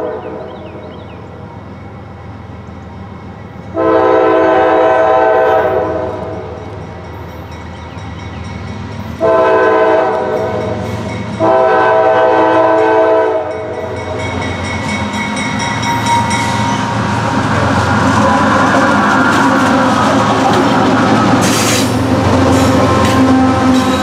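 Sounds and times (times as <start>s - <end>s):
locomotive engines and wheels rumbling: 0.0s - 24.0s
locomotive air horn blasts: 3.8s - 6.5s, 9.2s - 13.8s, 21.4s - 24.0s.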